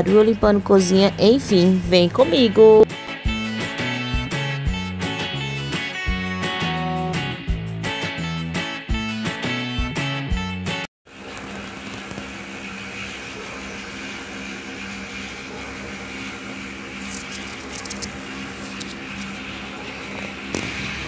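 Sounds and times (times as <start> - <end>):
mechanical hum: 11.1 - 21.0.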